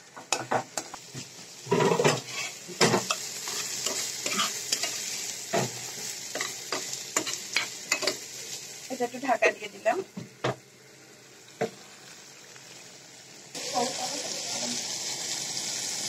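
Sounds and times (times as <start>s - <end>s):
hot oil sizzling: 0.0s - 16.0s
metal spatula scraping pan: 1.7s - 5.8s.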